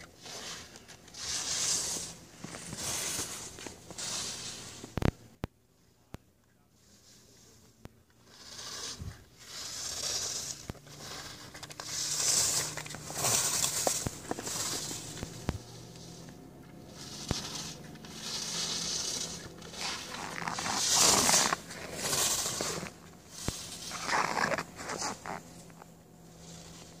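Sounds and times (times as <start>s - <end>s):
skis scraping on packed snow: 0.0s - 5.1s, 6.8s - 27.0s.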